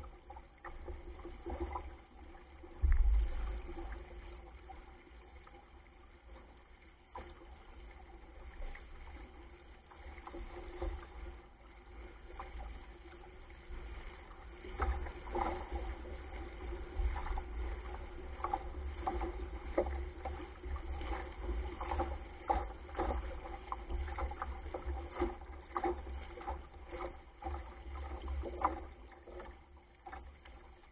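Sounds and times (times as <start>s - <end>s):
water splashing along a hull: 0.0s - 30.9s
wind buffeting microphone: 2.8s - 4.0s.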